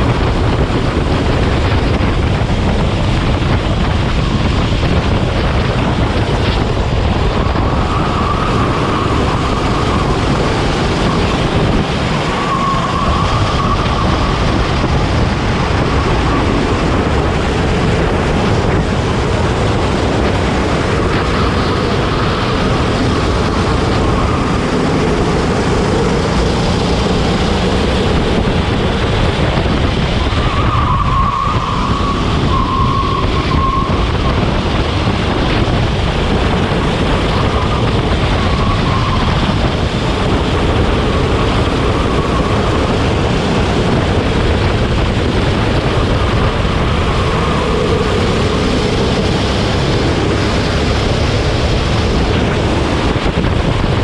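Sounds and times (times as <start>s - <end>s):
kart engine: 0.0s - 54.0s
wind buffeting microphone: 0.0s - 54.0s.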